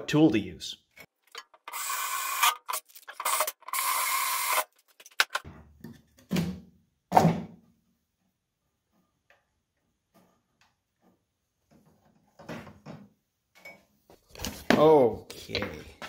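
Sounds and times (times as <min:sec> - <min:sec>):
cordless drill driving screw: 0:01.7 - 0:04.7.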